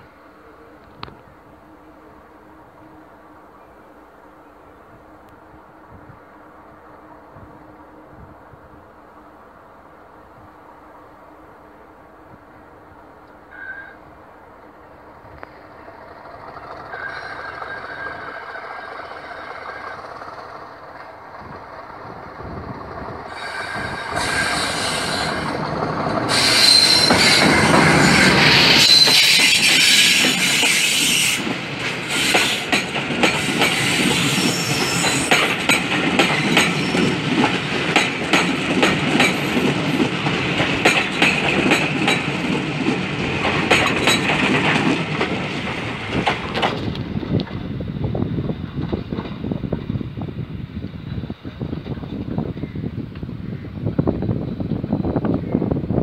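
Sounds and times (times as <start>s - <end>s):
diesel locomotive engine: 0.0s - 56.0s
train wheels clattering on rail joints: 15.3s - 47.8s, 48.5s - 50.1s.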